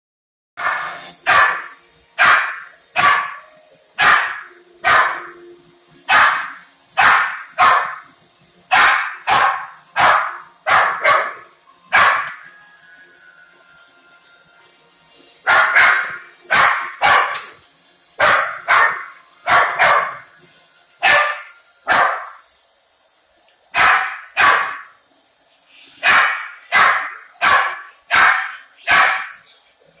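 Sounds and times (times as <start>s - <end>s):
puppy barking: 0.6s - 5.4s, 6.1s - 8.1s, 8.7s - 12.4s, 15.5s - 17.6s, 18.2s - 20.3s, 21.0s - 22.4s, 23.8s - 24.9s, 26.0s - 29.4s.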